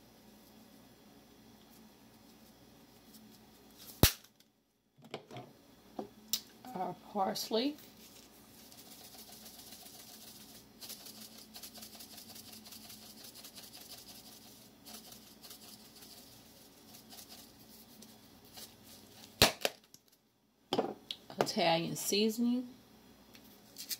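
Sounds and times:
dried herbs pattering from shaker: 7.7 - 20.2.

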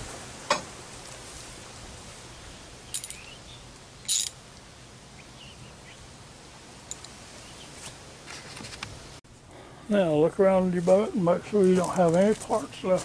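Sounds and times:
faint bird chirps: 2.4 - 3.7, 5.1 - 6.0
sharp rattle of metal clicks: 2.9 - 3.3, 4.0 - 4.4.

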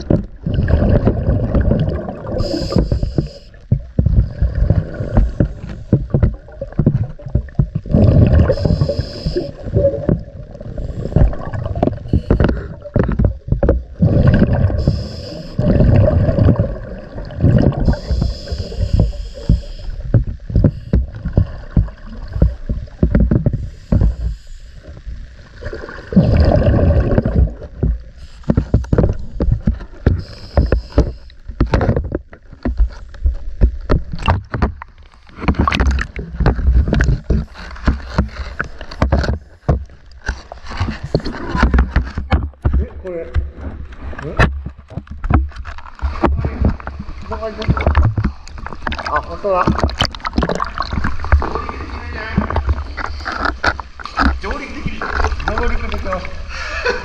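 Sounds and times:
bubbling exhaled air underwater: 0.0 - 31.7, 45.9 - 56.6
regulator hiss: 2.3 - 3.6, 8.4 - 9.8, 14.7 - 15.7, 17.8 - 21.0, 23.6 - 25.1, 28.1 - 29.4, 30.2 - 31.4.

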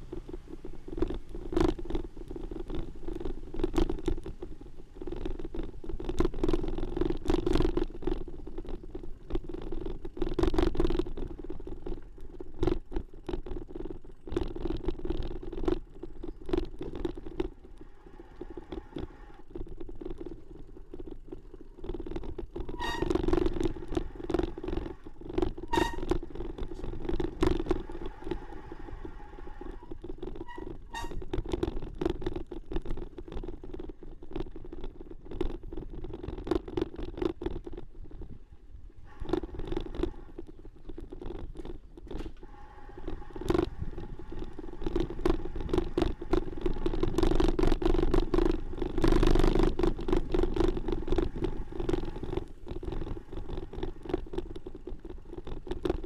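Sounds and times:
bicycle rattling over dirt path: 0.0 - 56.0
short high squeaks: 22.6 - 23.8, 25.6 - 26.2, 29.1 - 31.3.

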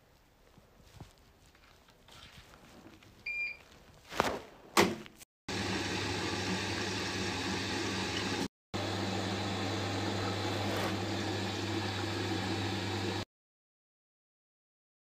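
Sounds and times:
washing machine motor hum: 5.5 - 13.2.

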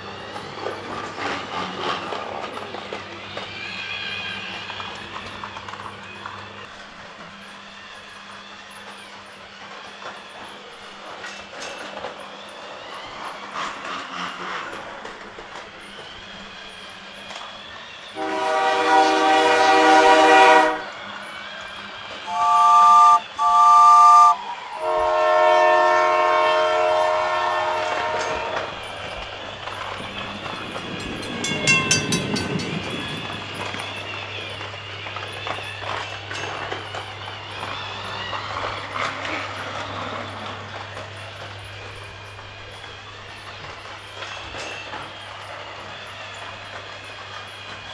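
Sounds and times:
toy train electronic horn: 18.2 - 21.0, 22.3 - 28.7
toy train motor hum: 21.2 - 24.4.

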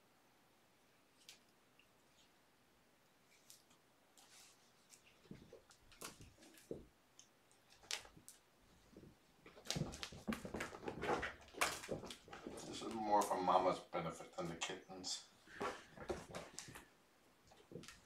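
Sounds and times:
kittens scuffling on carpet: 3.3 - 6.9, 7.5 - 13.7, 15.5 - 16.9, 17.5 - 18.0.

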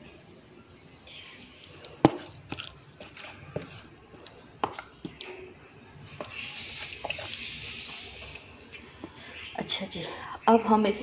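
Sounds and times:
beans squelching: 1.1 - 5.5, 6.1 - 9.4
plastic spoon scraping a plastic tub: 1.6 - 5.2, 6.2 - 8.4.

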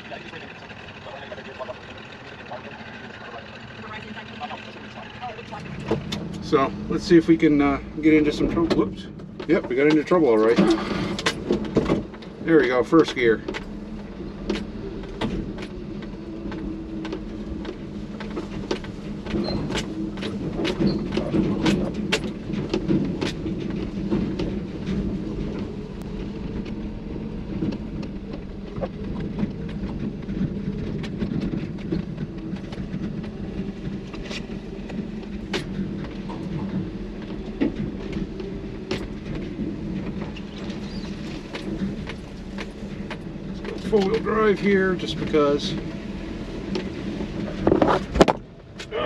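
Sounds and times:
clicks and rattles of truck: 0.0 - 49.0
small truck engine running: 0.0 - 49.0.

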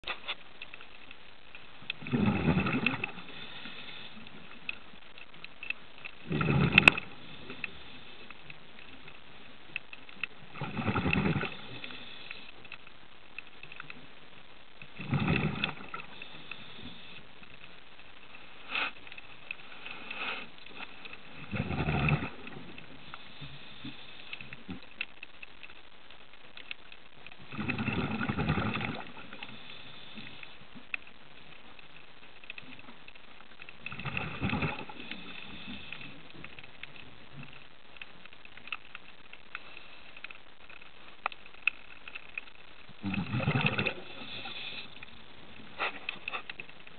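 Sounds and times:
steady low hiss: 0.0 - 46.9
breath bubbling underwater: 2.0 - 3.4, 6.2 - 7.4, 10.5 - 12.1, 15.0 - 17.0, 21.3 - 22.8, 27.4 - 29.7, 33.9 - 35.9, 43.0 - 44.7.

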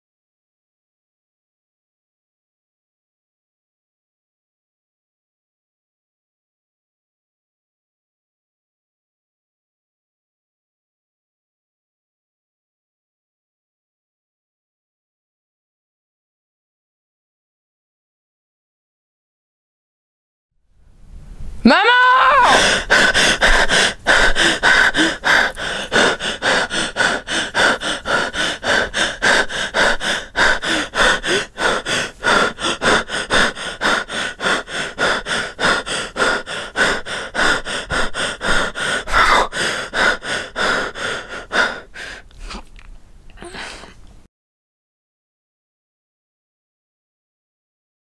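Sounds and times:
person breathing fast and gasping: 21.7 - 44.1.

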